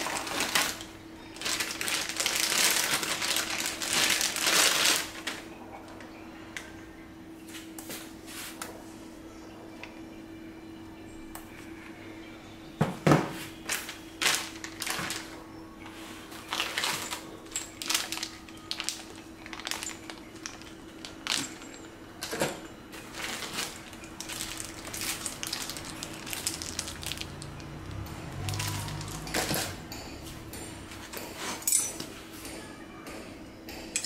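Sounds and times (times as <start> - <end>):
plastic bags crinkling: 0.0 - 5.5, 13.6 - 15.4, 16.2 - 29.8
faint steady hum: 0.0 - 34.0.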